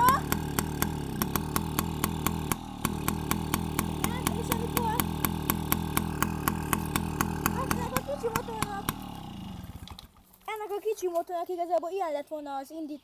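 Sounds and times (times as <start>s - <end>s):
small motorbike engine idling: 0.0s - 11.3s.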